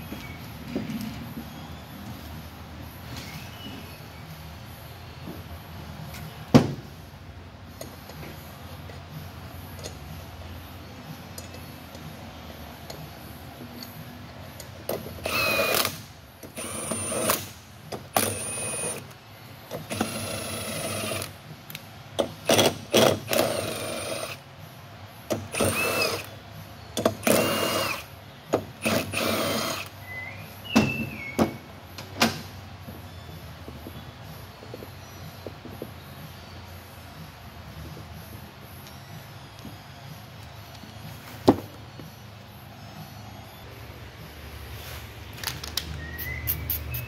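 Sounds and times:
power tool motor whining in bursts: 15.2s - 17.5s, 18.1s - 19.0s, 19.8s - 21.3s, 22.4s - 24.4s, 25.4s - 26.4s, 27.2s - 28.1s, 28.8s - 29.9s.

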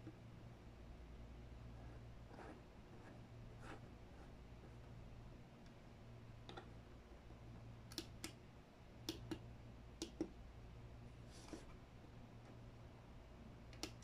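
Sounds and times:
low electrical hum: 0.0s - 14.0s
small sharp clicks: 13.7s - 14.0s.

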